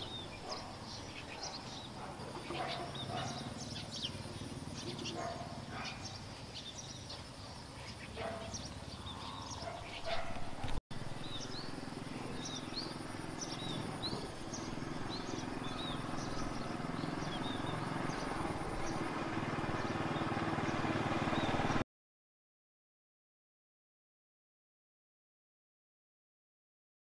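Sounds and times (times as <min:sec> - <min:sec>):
small birds chirping: 0:00.0 - 0:21.8.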